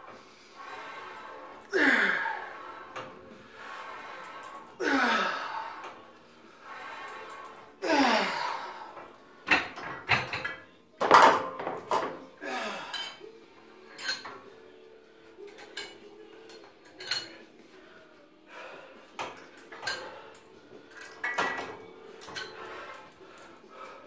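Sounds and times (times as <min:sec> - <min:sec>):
cable machine clanking: 0:19.2 - 0:23.5.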